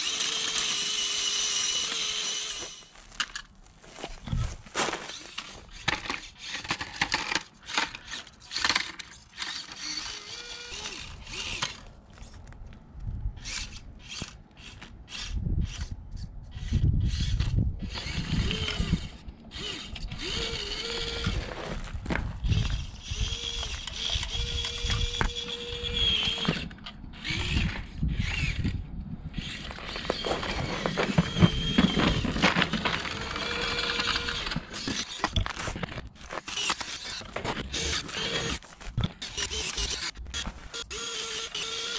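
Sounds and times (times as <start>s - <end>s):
small electric motor whining: 0.0s - 3.1s, 4.2s - 12.4s, 13.4s - 21.6s, 22.3s - 41.9s
gravel crunching under tyres: 1.4s - 15.1s, 17.8s - 41.7s.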